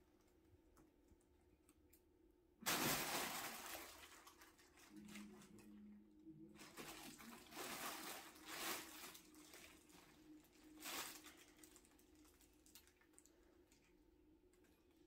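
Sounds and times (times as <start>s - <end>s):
fabric tunnel rustling and crackling: 2.6s - 13.4s.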